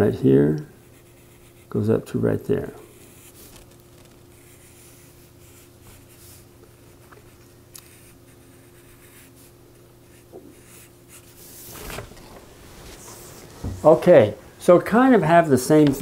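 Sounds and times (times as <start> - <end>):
steady low hum: 0.0 - 16.0
pencil scratching on paper: 0.9 - 1.7, 2.9 - 11.8.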